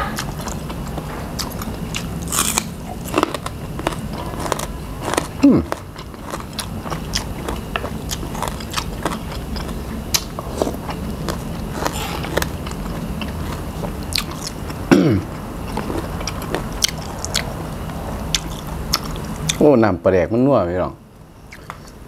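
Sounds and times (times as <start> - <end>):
crunchy chewing: 0.0 - 19.6, 21.4 - 22.0
short falling vocal sound: 11.9 - 12.5.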